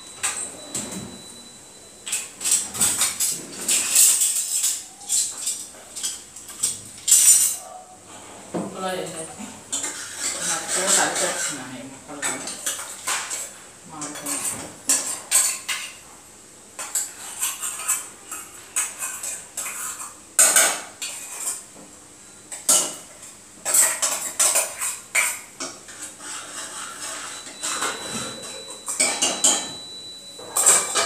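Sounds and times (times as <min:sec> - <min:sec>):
metal pots clinking and scraping: 0:09.0 - 0:15.9, 0:23.6 - 0:31.0.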